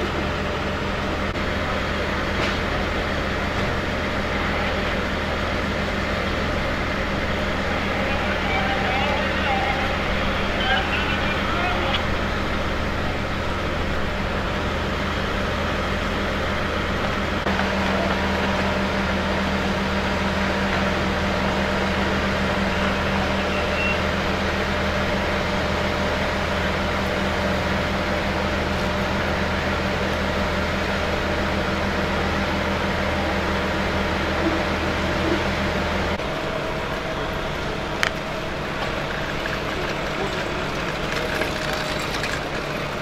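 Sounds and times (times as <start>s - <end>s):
engine droning: 0.0s - 43.0s.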